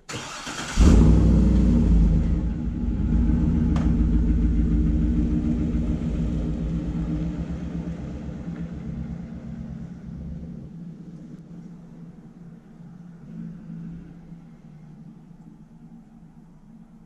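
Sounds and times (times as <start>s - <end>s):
suv engine running: 0.1s - 12.3s.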